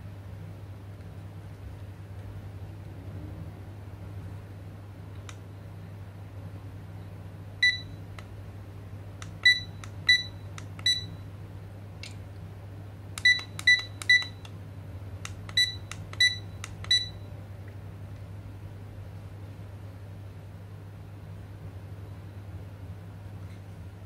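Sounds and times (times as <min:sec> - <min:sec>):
alarm clock short high beeps: 0:09.4 - 0:10.3, 0:10.9 - 0:11.1, 0:15.6 - 0:17.2.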